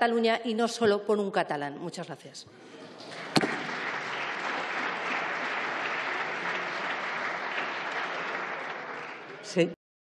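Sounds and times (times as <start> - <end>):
crowd applauding: 3.0 - 9.6.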